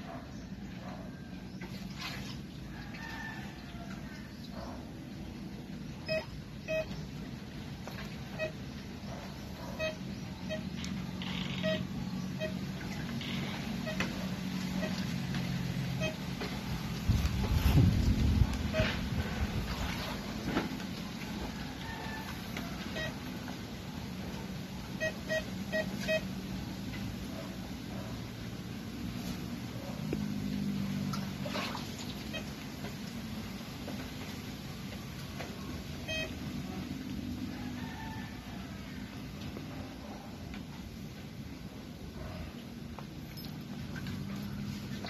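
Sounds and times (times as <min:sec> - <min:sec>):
metal detector beeps: 0:06.0 - 0:07.0, 0:09.6 - 0:12.7, 0:25.0 - 0:26.3, 0:36.0 - 0:36.5.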